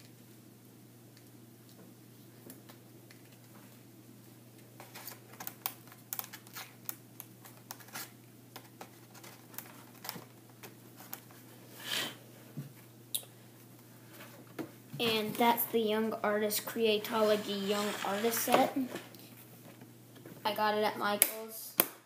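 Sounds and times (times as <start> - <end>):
brief scrape: 17.1 - 18.7.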